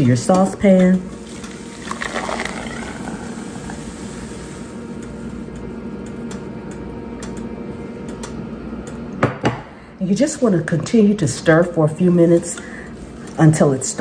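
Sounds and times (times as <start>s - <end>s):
thick liquid pouring into saucepan: 1.6s - 4.4s.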